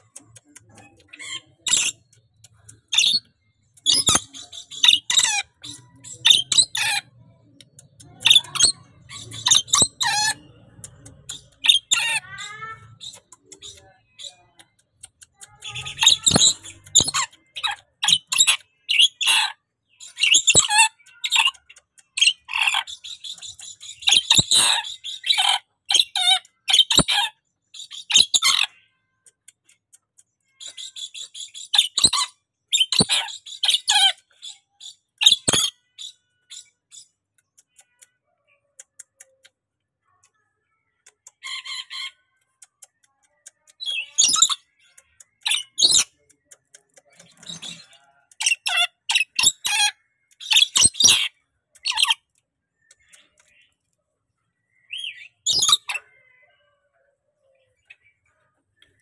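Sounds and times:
lorikeet chirping and squawking: 0:00.0 - 0:07.2, 0:08.0 - 0:14.5, 0:15.4 - 0:28.8, 0:30.5 - 0:37.1, 0:41.3 - 0:42.2, 0:43.8 - 0:46.2, 0:47.2 - 0:52.3, 0:54.8 - 0:56.2.

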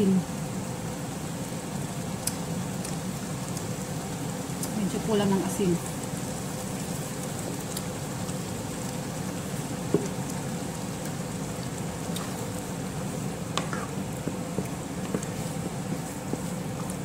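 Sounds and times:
sauce sizzling in a frying pan: 0:00.0 - 0:17.0
wooden spoon stirring: 0:06.8 - 0:17.0.

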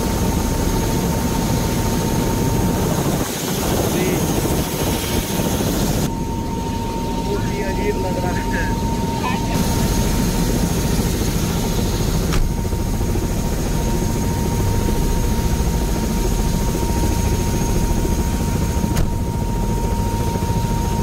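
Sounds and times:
helicopter engine and rotor drone: 0:00.0 - 0:21.0.

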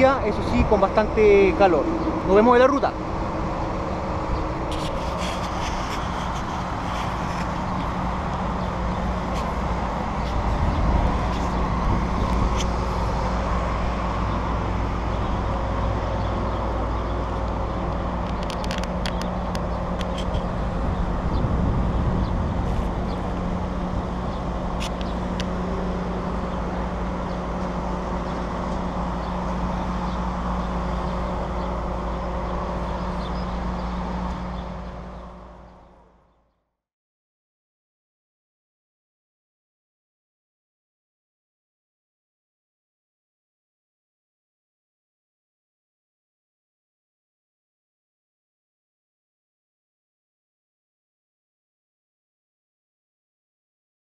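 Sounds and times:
vehicle engine idling: 0:00.0 - 0:36.6.

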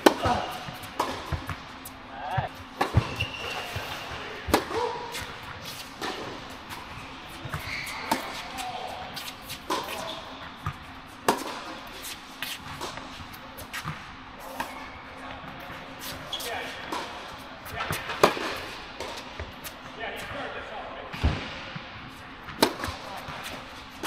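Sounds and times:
tennis ball hit by rackets: 0:00.0 - 0:01.6, 0:02.4 - 0:06.4, 0:07.3 - 0:10.0, 0:10.6 - 0:11.7, 0:17.8 - 0:19.2, 0:22.5 - 0:23.6
steady low hum: 0:00.0 - 0:24.0.

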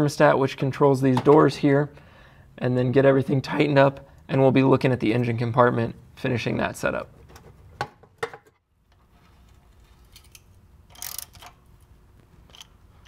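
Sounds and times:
metallic clicks of hand tools: 0:10.1 - 0:11.6, 0:12.5 - 0:12.8
ratchet tightening bolts: 0:10.9 - 0:11.6.

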